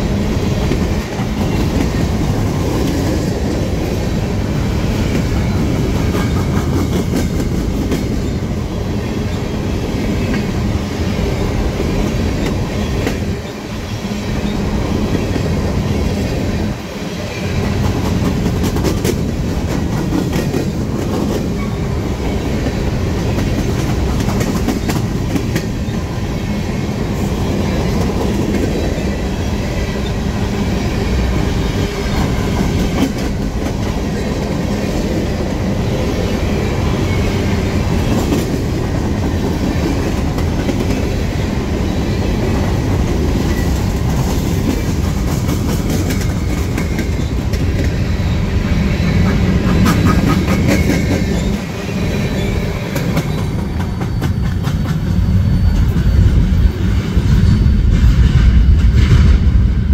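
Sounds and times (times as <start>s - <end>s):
freight train wheels rumbling on rail: 0.0s - 59.9s
wheels clacking over rail joints: 17.6s - 26.1s.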